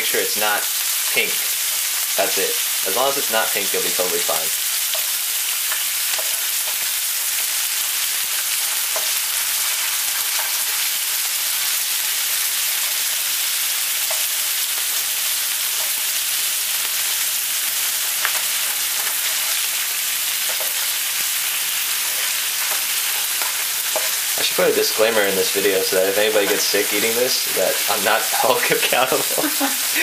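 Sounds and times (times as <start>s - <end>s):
beef sizzling in oil: 0.0s - 30.0s
spatula tapping and scraping pan: 20.4s - 20.9s.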